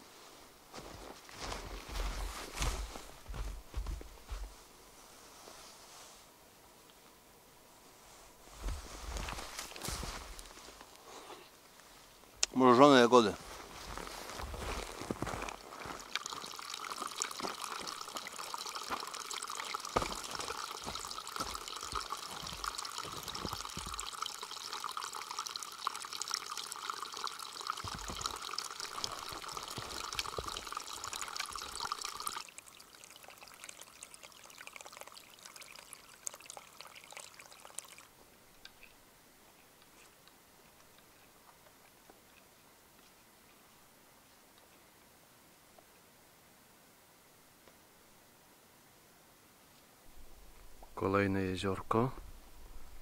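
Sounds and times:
low hiss: 0.0s - 53.0s
water trickling and splashing: 0.9s - 4.6s, 8.5s - 11.0s, 12.4s - 39.0s.

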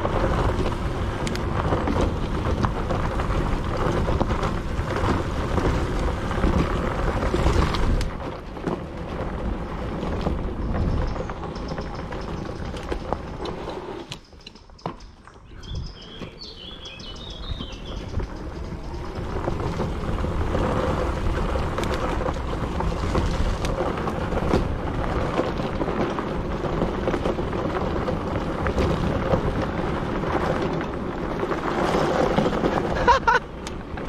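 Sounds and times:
wind buffeting microphone: 0.0s - 14.8s, 15.4s - 34.0s
tyres rumbling on dirt trail: 0.0s - 34.0s
bird chirping: 14.2s - 19.2s.

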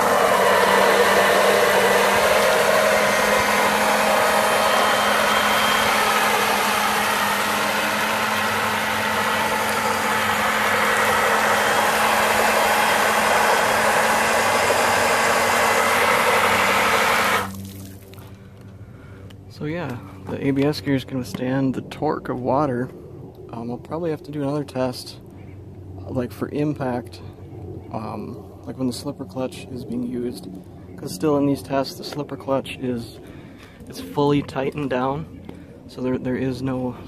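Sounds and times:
electric motor hum: 0.0s - 18.6s.

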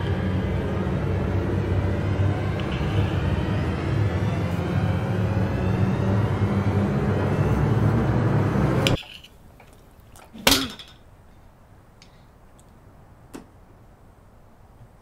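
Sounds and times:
low rumbling drone with rising tones: 0.0s - 9.0s.

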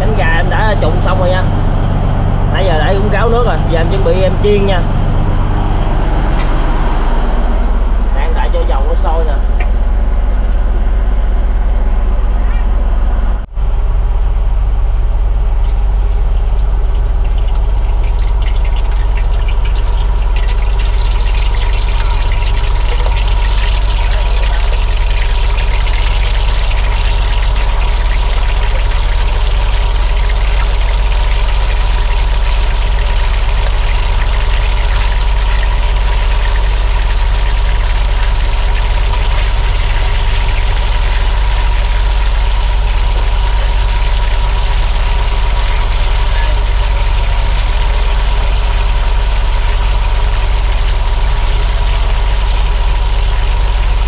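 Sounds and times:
boat engine drone: 0.0s - 54.0s
chicken frying in hot oil: 13.8s - 54.0s.

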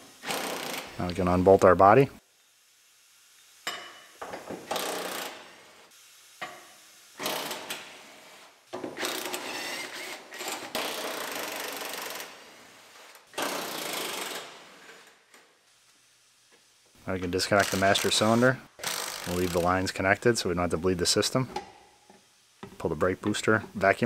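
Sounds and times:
impact wrench rattling: 4.7s - 5.5s, 8.8s - 12.3s, 13.4s - 14.6s.

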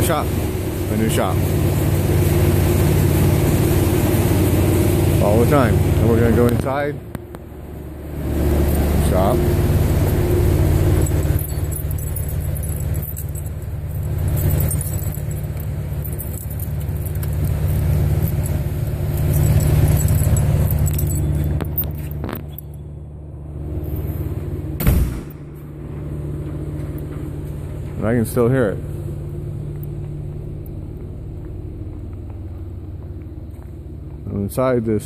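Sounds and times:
low machine hum: 0.0s - 35.0s
keys jangling in a lock: 10.0s - 22.8s
metal door banging shut: 24.8s - 25.5s.

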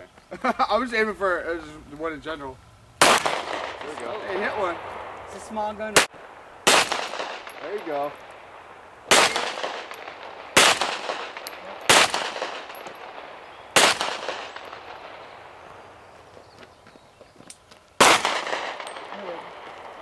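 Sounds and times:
pistol shots with echo: 3.0s - 15.6s, 18.0s - 20.0s.

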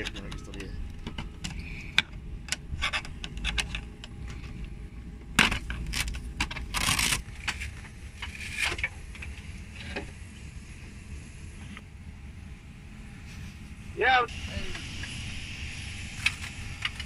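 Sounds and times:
metallic clicks and rattles: 0.0s - 4.6s
steady low hum: 0.0s - 17.0s.

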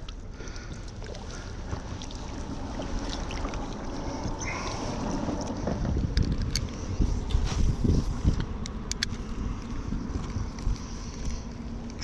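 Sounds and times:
water lapping against hull: 0.0s - 8.6s, 9.2s - 12.0s
low wind rumble on microphone: 0.0s - 12.0s.

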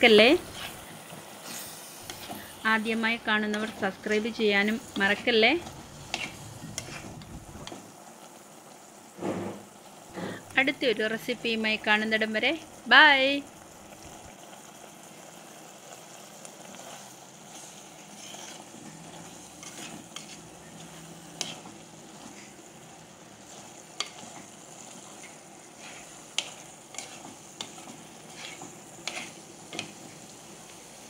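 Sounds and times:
faint sizzle: 0.0s - 31.0s
spoon scraping a clay pot: 0.4s - 0.8s, 6.0s - 7.8s, 16.9s - 22.5s, 25.1s - 29.9s.

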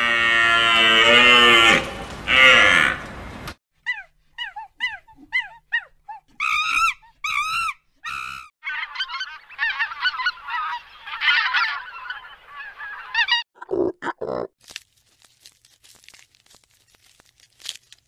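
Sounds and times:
waterfowl calling: 8.1s - 13.4s.

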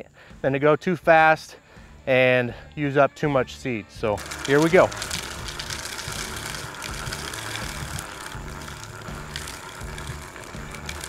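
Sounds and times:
seed spreader gears clicking whir: 4.0s - 11.0s.

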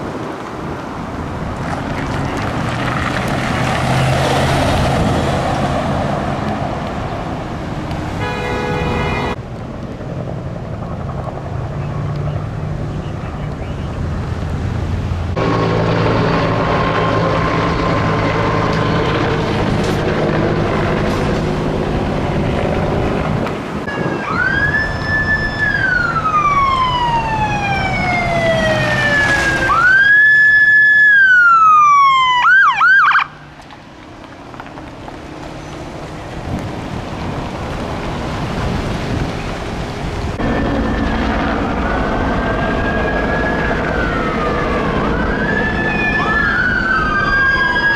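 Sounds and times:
engine and traffic noise: 0.0s - 47.9s
electronic siren wailing and yelping: 23.9s - 33.4s, 40.4s - 47.9s.

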